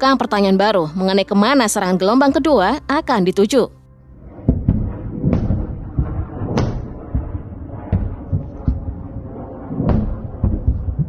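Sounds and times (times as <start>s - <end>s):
low rumble: 3.8s - 11.0s
distant explosions booming: 4.1s - 11.0s.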